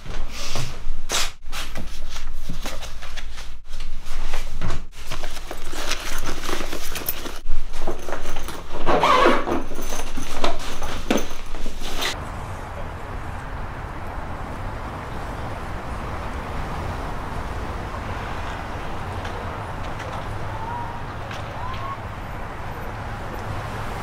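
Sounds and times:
papers and backpack rustling: 1.4 - 12.2.

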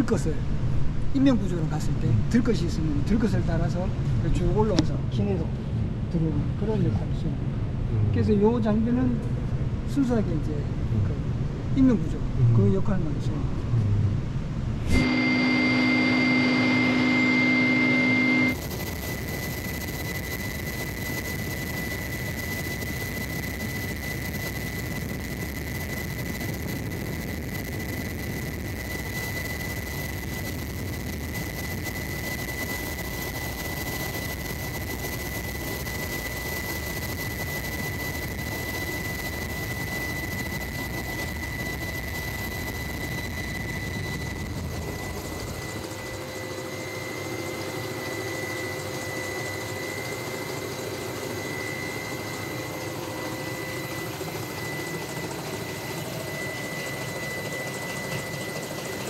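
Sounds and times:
helicopter rotor and turbine noise: 0.0 - 59.0
constant high tone: 14.9 - 59.0.

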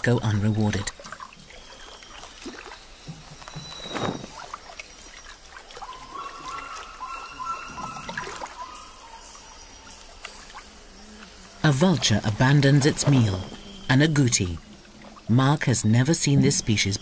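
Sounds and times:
faint trickle of water: 0.0 - 15.6
rustles and clicks: 3.1 - 4.6
animal call high tone: 5.8 - 10.0.

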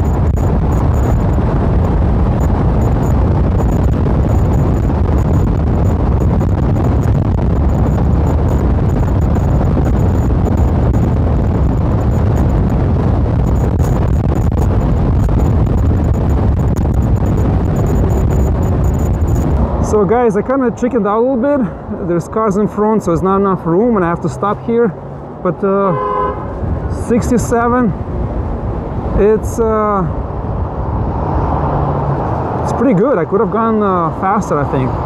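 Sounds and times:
wind buffeting microphone: 0.0 - 20.5.

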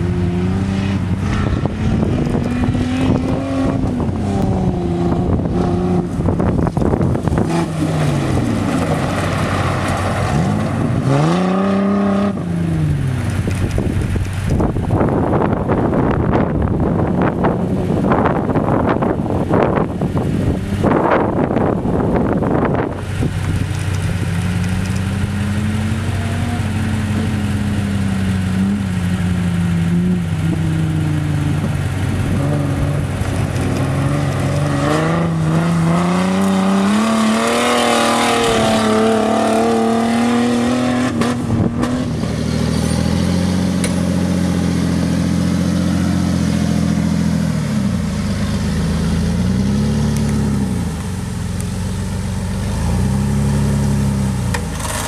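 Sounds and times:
low engine note crawling: 0.0 - 55.0
engine revving hard: 33.8 - 46.0.

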